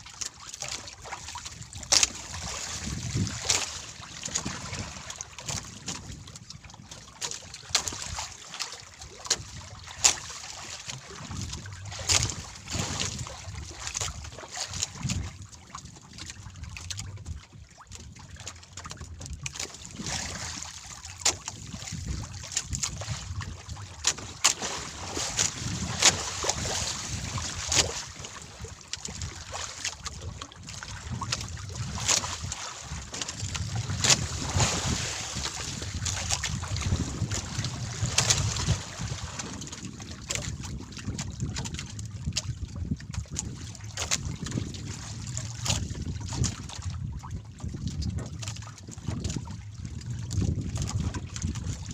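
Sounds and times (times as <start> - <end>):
water slapping against canoe: 0.0 - 51.9
wind buffeting microphone: 1.5 - 7.1, 10.9 - 51.9
knocks and clicks of fishing line: 10.0 - 12.4.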